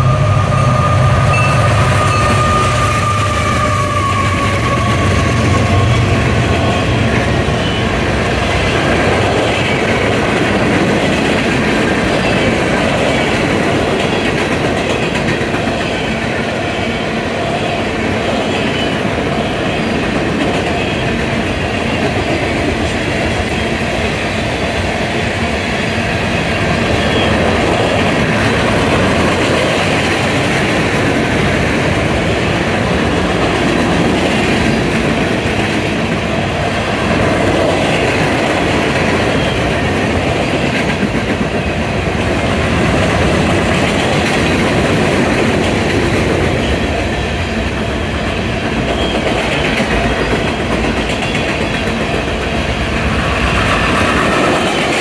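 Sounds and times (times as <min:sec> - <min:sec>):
train wheels on rails: 0:00.0 - 0:55.0.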